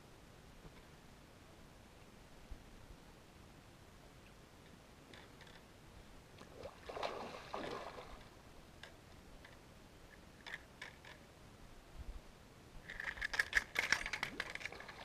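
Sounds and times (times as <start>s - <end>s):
water sloshing and splashing: 6.4s - 8.4s, 13.8s - 15.0s.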